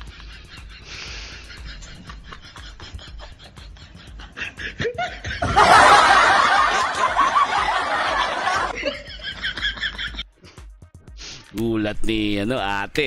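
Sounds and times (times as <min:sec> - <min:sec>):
loud burst of laughter: 0:00.0 - 0:10.1
man snickering and chuckling: 0:00.0 - 0:10.6.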